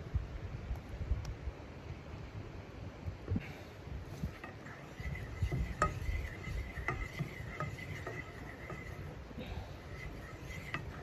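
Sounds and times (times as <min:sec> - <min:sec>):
wooden spatula scraping a pan: 0:04.0 - 0:11.0.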